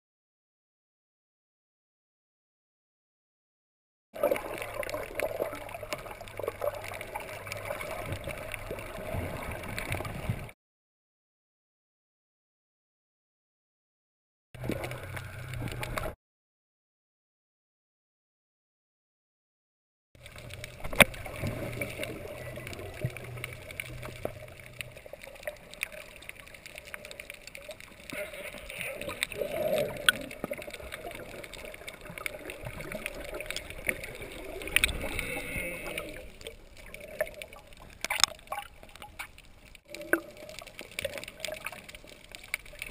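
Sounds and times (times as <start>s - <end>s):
water gurgling and sloshing: 4.2s - 10.6s, 14.6s - 16.2s, 20.2s - 42.9s
low hum: 14.6s - 16.2s.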